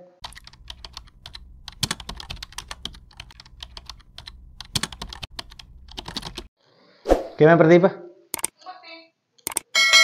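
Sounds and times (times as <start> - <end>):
keyboard key clicks: 0.2 - 6.5, 9.4 - 9.6.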